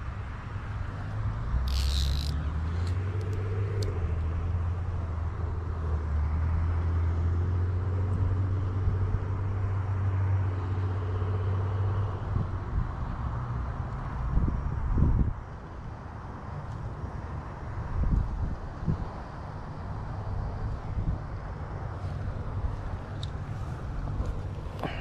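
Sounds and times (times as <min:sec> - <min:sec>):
road traffic drone: 0:00.0 - 0:25.0.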